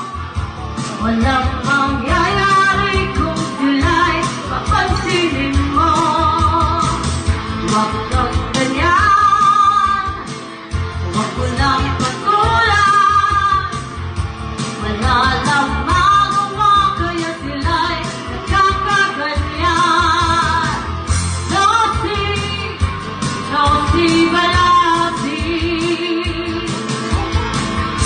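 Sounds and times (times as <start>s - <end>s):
person singing with vibrato: 0.0s - 13.8s, 14.7s - 22.8s, 23.4s - 28.0s
pop band with bass beat: 0.0s - 28.0s.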